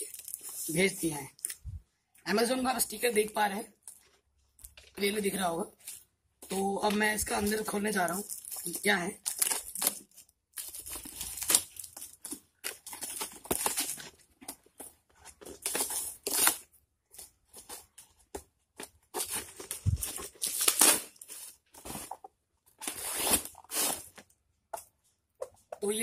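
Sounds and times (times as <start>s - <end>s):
cardboard ripping and scraping: 9.3s - 14.2s, 15.4s - 16.7s, 19.1s - 22.2s, 22.8s - 24.2s.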